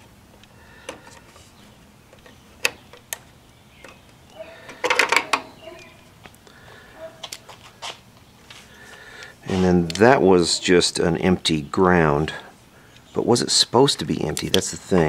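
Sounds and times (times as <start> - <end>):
plastic connectors clicking: 4.7 - 5.9.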